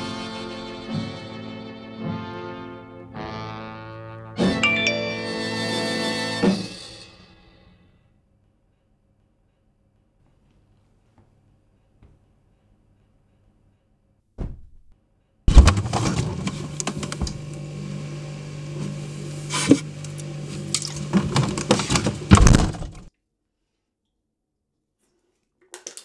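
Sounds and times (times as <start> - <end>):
fridge door thump: 14.4 - 14.8, 21.2 - 23.1
fridge humming: 15.5 - 23.1
items clinking on shelves: 19.6 - 23.1.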